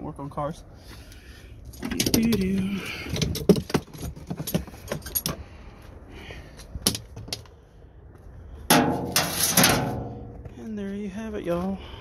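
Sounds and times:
cable clicks and knocks: 1.8s - 5.4s.

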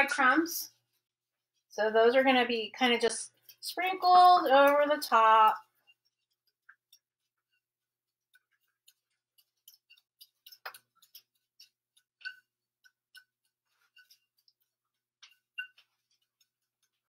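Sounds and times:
metal spoon scraping saucepan: 8.4s - 14.5s.

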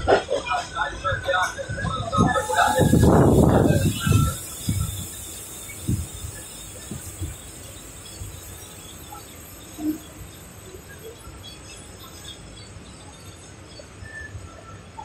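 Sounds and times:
train rumble and hiss: 0.0s - 15.0s.

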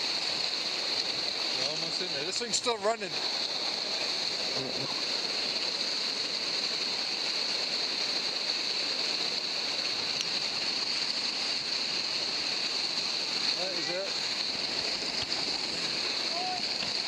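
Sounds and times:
river rapids rushing: 0.0s - 17.0s.

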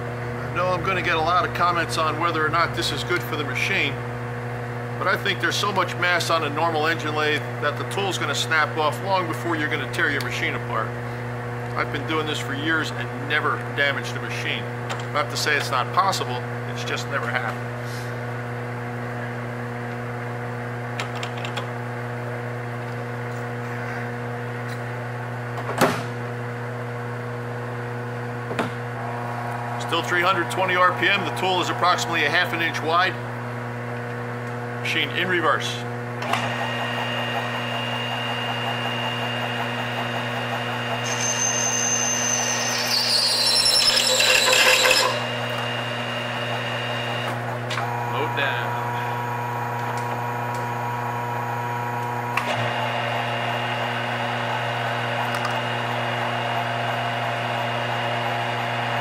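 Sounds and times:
lathe running with steady hum: 0.0s - 25.5s, 26.4s - 59.0s
lathe humming: 29.0s - 34.8s, 36.2s - 59.0s
metal cutting squeal: 41.0s - 46.0s.

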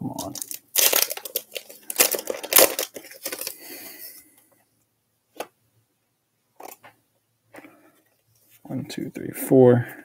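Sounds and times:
foil wrapper crinkling: 0.2s - 3.9s.

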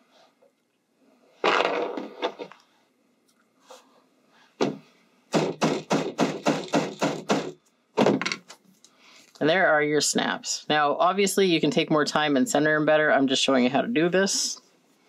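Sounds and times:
plastic mallet hammering metal tool: 4.6s - 8.2s.

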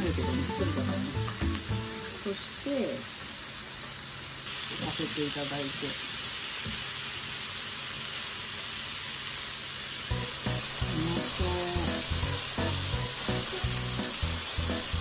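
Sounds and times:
meat sizzling on a grill: 0.0s - 15.0s.

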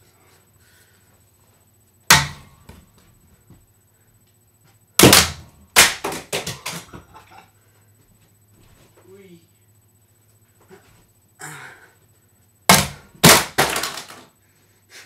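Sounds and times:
remote control hitting hard surfaces: 12.7s - 14.2s.

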